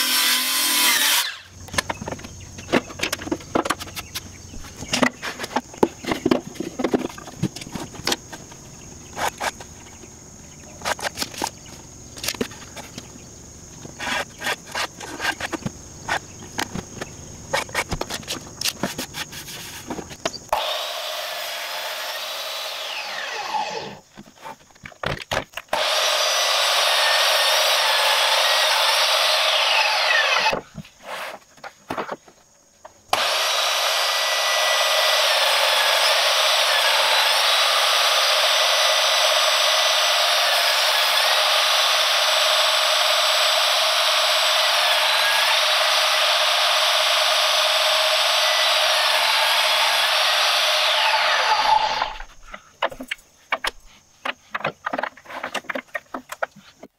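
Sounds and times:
table saw cutting wood: 0.0s - 1.5s, 20.5s - 24.0s, 25.7s - 30.6s, 33.1s - 52.3s.

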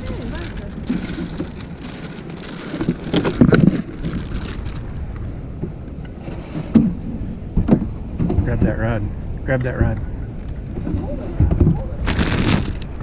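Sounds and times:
gear knocking in boat: 0.0s - 4.8s
wind rumbling on microphone: 0.0s - 13.0s.

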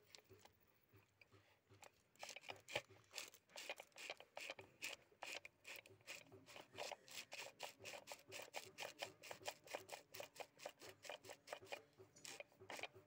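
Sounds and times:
brushes scraping and clicking: 0.0s - 13.0s.

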